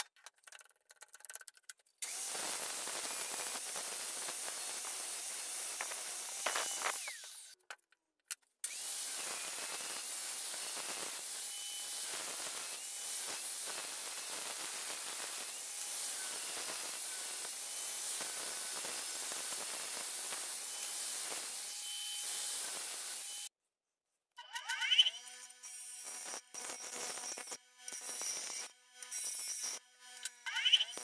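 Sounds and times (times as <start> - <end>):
angle grinder cutting steel: 2.0 - 7.6, 8.6 - 23.5, 24.4 - 31.0.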